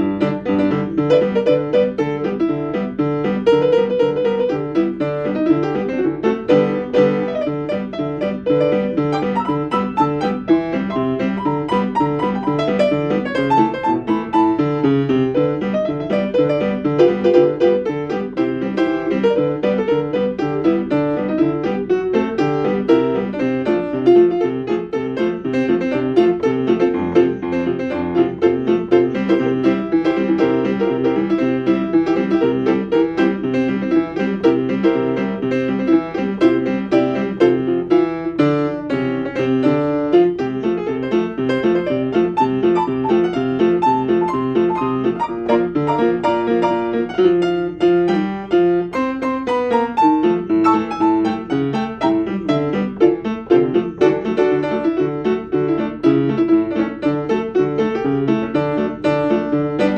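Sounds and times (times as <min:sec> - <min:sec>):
keyboard piano tune: 0:00.0 - 0:59.9.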